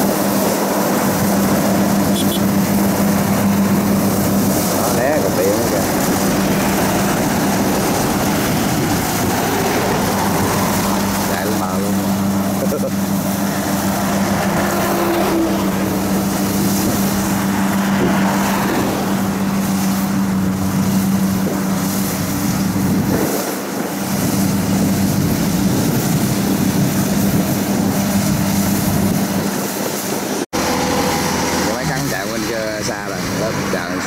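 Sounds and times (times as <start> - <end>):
combine harvester diesel engine running: 0.0 - 34.0
rushing mechanical noise: 0.0 - 34.0.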